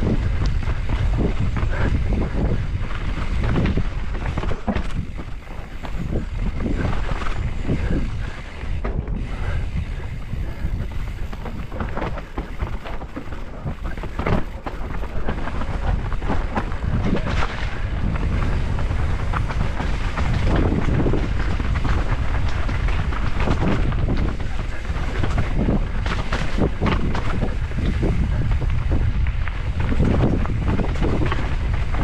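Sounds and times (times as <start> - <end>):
tyres rumbling on dirt trail: 0.0 - 32.0
wind buffeting microphone: 0.0 - 32.0.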